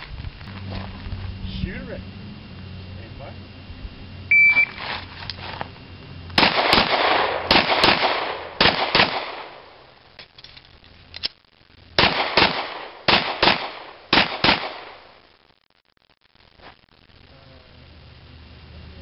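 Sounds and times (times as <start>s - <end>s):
pistol shots in pairs: 6.4s - 9.8s, 12.0s - 15.1s.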